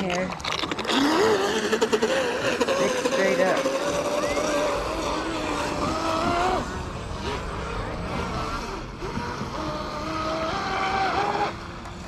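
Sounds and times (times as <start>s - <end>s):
electric motor whining: 0.0s - 12.0s.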